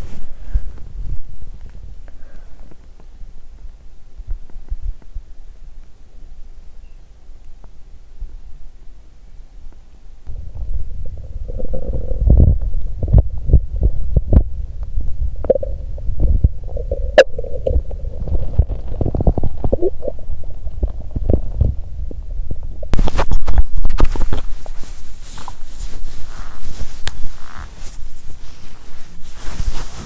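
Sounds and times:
microphone rustling on clothing: 0.0s - 2.0s, 22.9s - 30.0s
stomach gurgling and rumbling: 10.2s - 30.0s.

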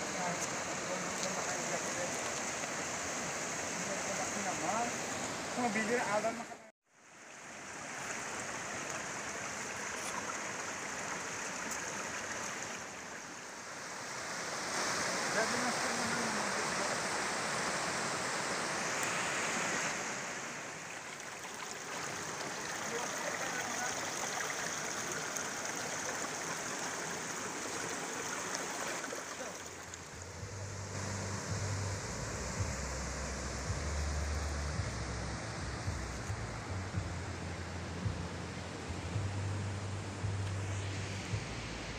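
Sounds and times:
river water flowing over rocks: 0.0s - 41.9s
low rumble: 30.2s - 41.9s.

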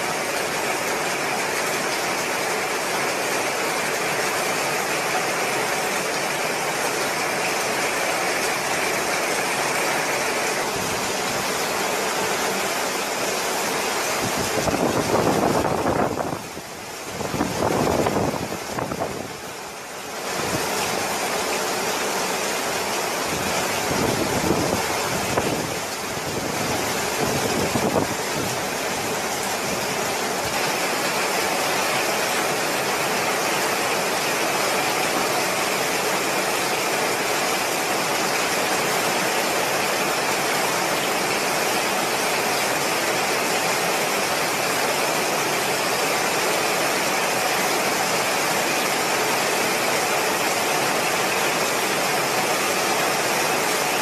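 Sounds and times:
heavy wind-driven rain: 0.0s - 54.0s
strong wind: 12.8s - 19.6s, 20.2s - 21.0s, 23.2s - 31.5s
wind buffeting microphone: 23.8s - 28.7s.

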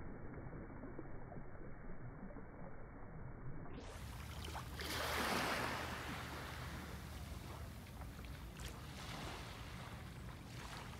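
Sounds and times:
gentle waves lapping on sand: 3.8s - 10.9s.

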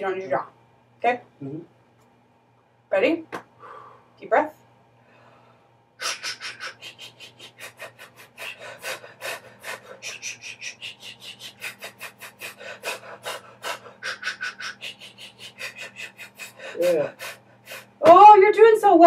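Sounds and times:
rapid hissed breath pulses: 5.1s - 18.0s.

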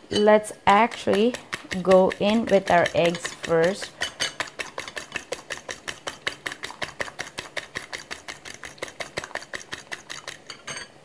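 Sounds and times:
fork beating eggs in a bowl: 0.2s - 10.9s.

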